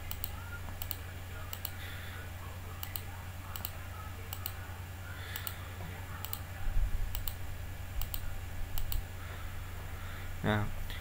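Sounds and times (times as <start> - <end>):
computer mouse clicking: 0.0 - 1.8, 2.8 - 4.6, 5.4 - 5.6, 6.2 - 6.5, 7.1 - 7.4, 8.0 - 9.0
steady low hum: 0.0 - 11.0.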